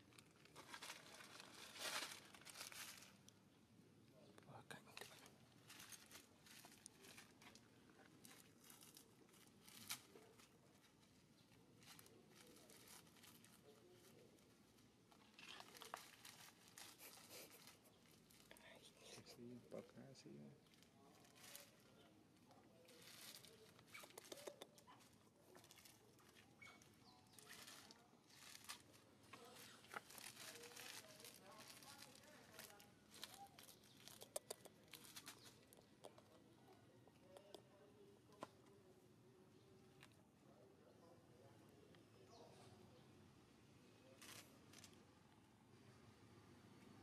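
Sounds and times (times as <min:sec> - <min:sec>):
plastic wrapper crinkling: 0:00.0 - 0:03.3, 0:15.1 - 0:18.8, 0:22.8 - 0:36.2.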